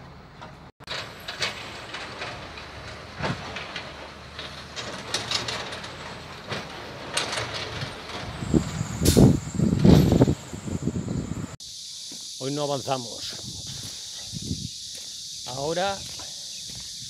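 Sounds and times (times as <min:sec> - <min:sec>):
heavy construction machinery rumbling: 0:00.0 - 0:11.6
metal clanks and rattles: 0:00.3 - 0:10.6.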